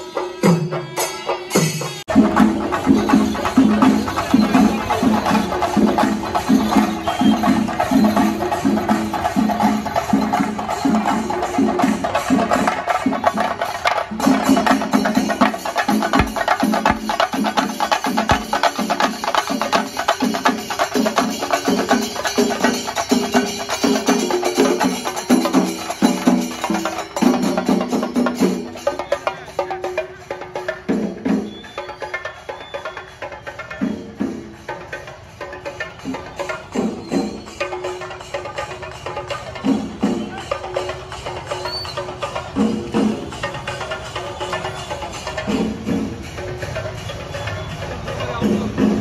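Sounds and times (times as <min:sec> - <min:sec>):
drums beaten fast with sticks: 0:00.0 - 0:49.0
steady low drum beat: 0:14.2 - 0:19.8.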